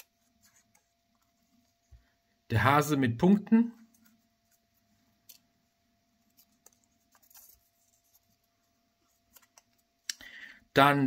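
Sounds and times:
paper slip crinkling: 0:06.2 - 0:09.9.

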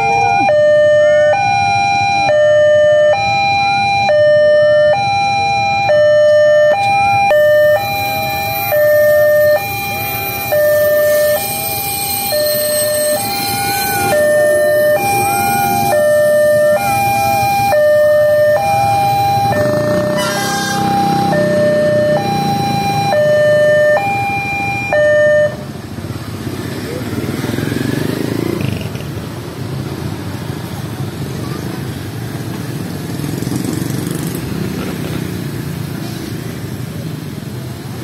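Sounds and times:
two-tone crossing alarm: 0:00.0 - 0:25.8
passing train rushing: 0:07.3 - 0:24.3.

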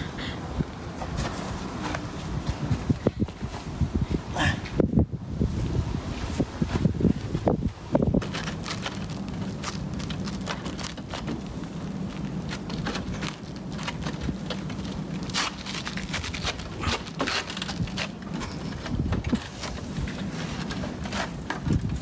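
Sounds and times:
shoes scuffing on roof tiles: 0:00.9 - 0:03.8.

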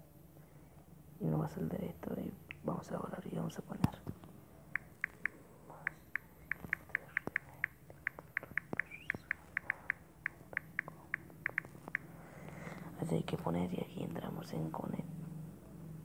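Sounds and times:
phone keyboard ticks: 0:04.8 - 0:12.1.

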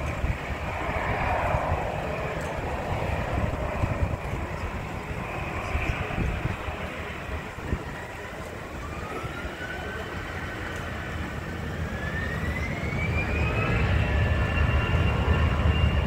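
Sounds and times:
jet engines spooling up: 0:00.0 - 0:16.0.

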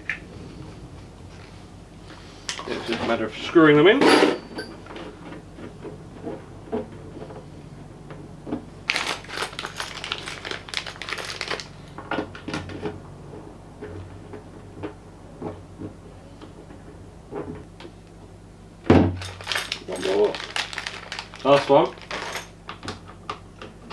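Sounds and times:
plastic packet crinkling: 0:08.9 - 0:11.8, 0:19.2 - 0:22.4.

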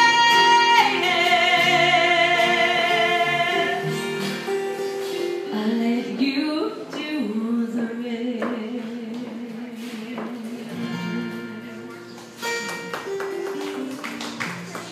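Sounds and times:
woman singing: 0:00.0 - 0:04.0, 0:05.3 - 0:11.6
acoustic guitars strumming: 0:00.0 - 0:14.9.

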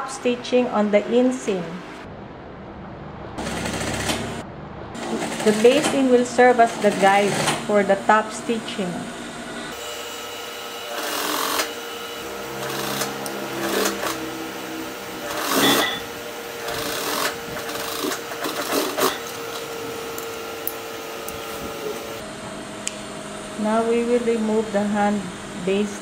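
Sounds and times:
motor hum: 0:01.8 - 0:26.0
sewing machine stitching: 0:03.4 - 0:04.4, 0:05.0 - 0:07.7, 0:10.9 - 0:11.9, 0:12.5 - 0:14.4, 0:15.2 - 0:19.6.

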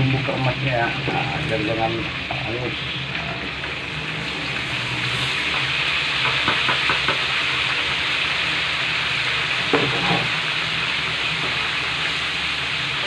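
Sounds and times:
food sizzling in hot oil: 0:00.0 - 0:13.0
spatula scraping a wok: 0:09.7 - 0:10.4.

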